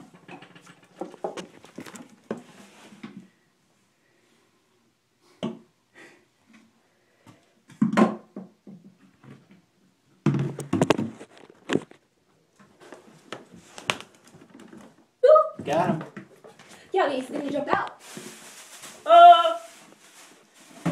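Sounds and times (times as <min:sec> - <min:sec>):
plastic container knocking on floor: 0:10.2 - 0:11.2
plastic container clattering: 0:20.6 - 0:20.9.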